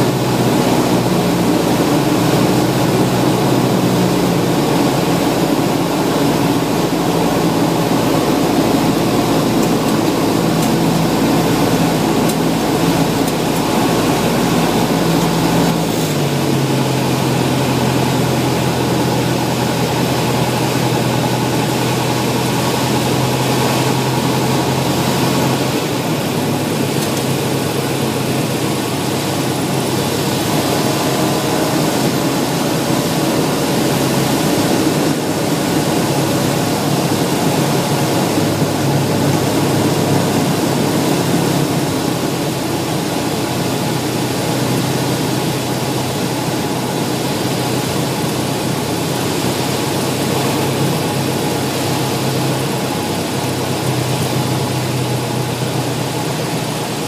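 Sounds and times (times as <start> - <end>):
airplane engine and propeller droning: 0.0 - 57.0.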